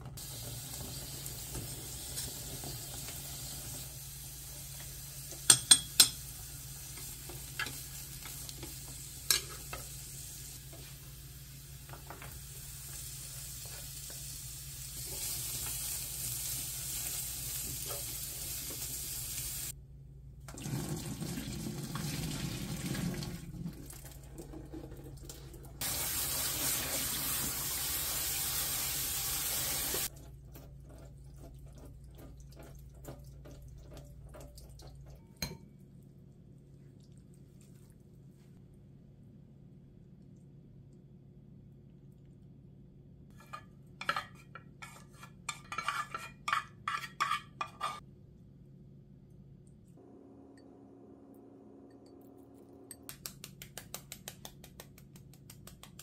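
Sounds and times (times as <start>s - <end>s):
vegetables sizzling in a frying pan: 0.2s - 19.8s, 25.8s - 30.1s.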